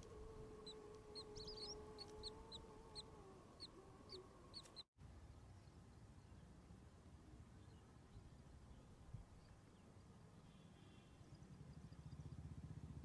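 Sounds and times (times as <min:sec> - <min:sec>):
chicks peeping: 0:00.2 - 0:04.8.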